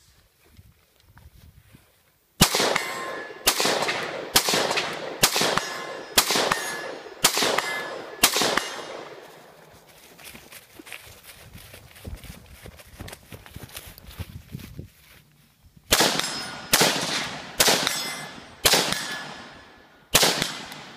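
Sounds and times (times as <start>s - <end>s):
rifle gunshots with echo: 2.4s - 9.6s, 15.9s - 20.9s.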